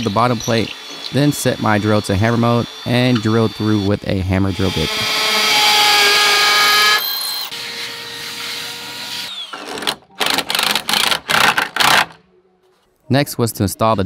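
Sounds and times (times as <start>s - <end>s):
hammer drill whining: 0.0s - 12.2s.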